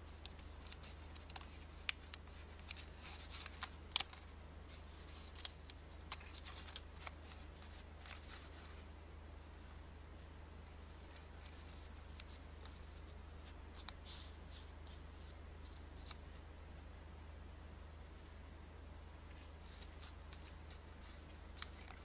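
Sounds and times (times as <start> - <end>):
paper banknote crinkling: 0.0 - 8.9, 19.5 - 22.0.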